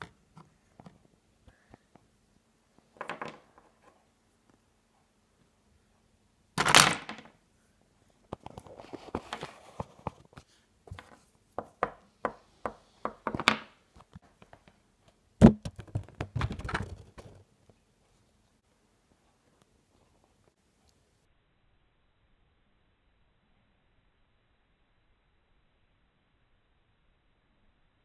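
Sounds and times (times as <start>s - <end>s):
plastic figures clattering: 3.0s - 3.9s, 6.6s - 7.4s, 15.4s - 17.4s
loud thunk and knocks: 15.4s - 17.0s.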